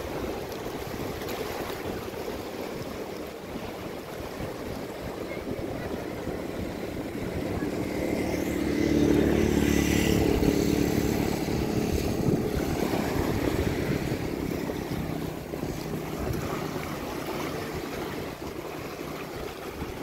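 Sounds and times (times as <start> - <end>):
small waves washing on sand: 0.0 - 20.0
motor engine passing by: 5.6 - 19.4.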